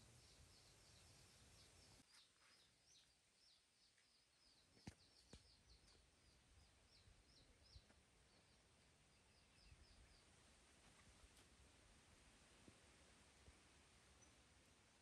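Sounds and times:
faint high bird chirps: 0.0s - 10.4s, 14.1s - 14.5s.

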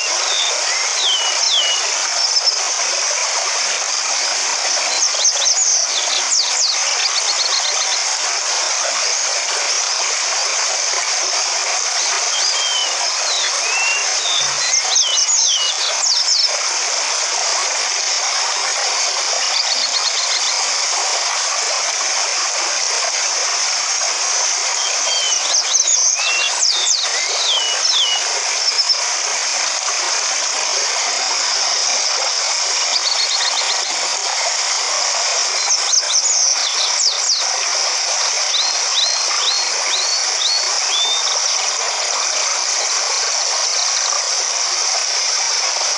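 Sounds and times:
small birds chirping: 0.0s - 2.6s, 12.3s - 16.5s, 24.8s - 29.0s, 38.5s - 41.4s
stream water rushing over rocks: 0.0s - 45.9s.

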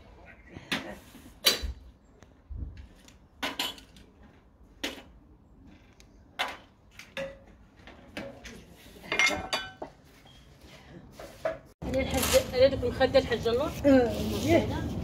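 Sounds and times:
dishes and cutlery clinking: 8.2s - 10.0s.

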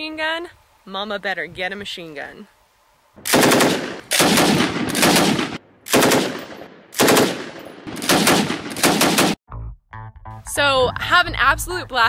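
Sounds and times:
machine gun automatic bursts: 3.3s - 9.4s.

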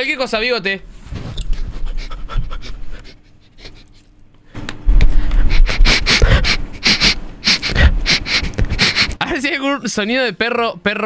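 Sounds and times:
person imitating dog sniffing: 5.4s - 9.2s.

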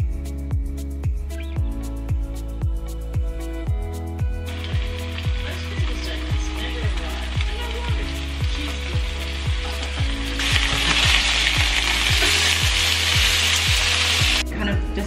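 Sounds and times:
background music beat: 0.0s - 15.0s
chicken sizzling in frying pan: 4.5s - 14.4s.

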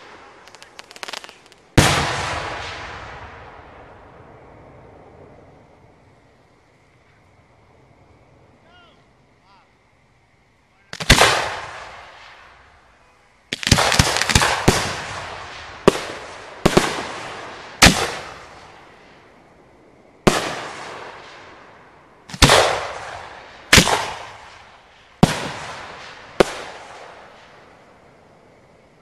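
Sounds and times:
firework bangs echoing: 0.0s - 4.1s, 10.9s - 12.7s, 13.5s - 19.2s, 20.2s - 21.7s, 22.3s - 27.8s.

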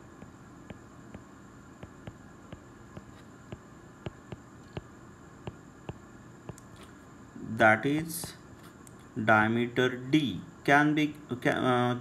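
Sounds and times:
low steady hiss: 0.0s - 12.0s
stylus tapping on glass screen: 0.2s - 6.7s.

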